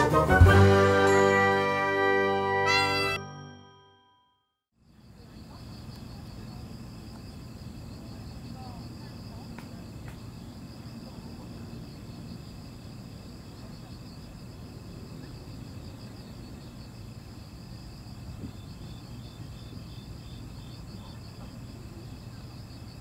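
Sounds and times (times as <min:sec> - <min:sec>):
crickets chirping: 0:04.8 - 0:23.0.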